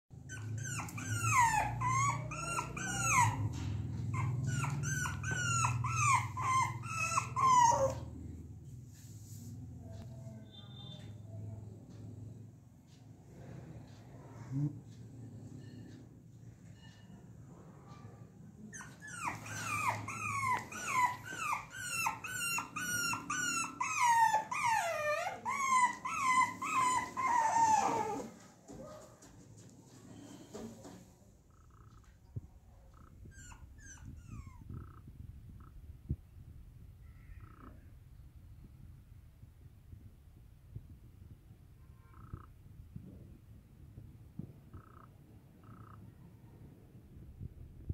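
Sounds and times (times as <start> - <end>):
puppy whining: 0.1 - 8.5, 18.0 - 29.1, 31.5 - 35.8, 37.0 - 38.0, 44.7 - 46.2
puppy yelping: 0.2 - 8.2, 18.7 - 28.4, 32.9 - 35.0, 37.2 - 37.8, 44.7 - 46.0.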